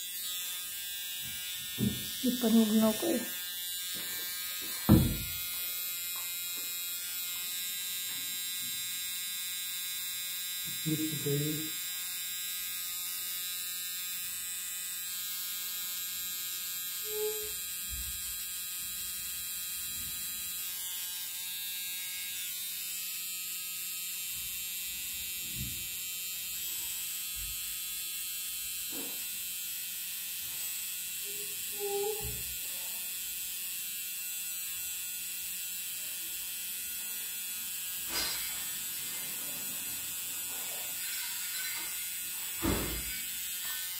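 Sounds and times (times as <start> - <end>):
makeup machine pen buzzing: 0.0 - 43.9.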